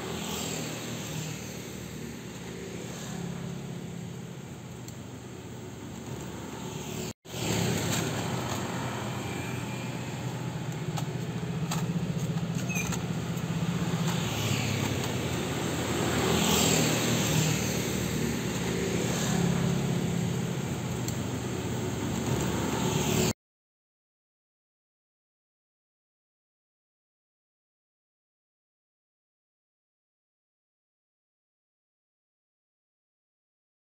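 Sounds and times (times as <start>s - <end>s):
traffic engine hum: 0.0s - 23.3s
vehicles passing: 0.0s - 23.4s.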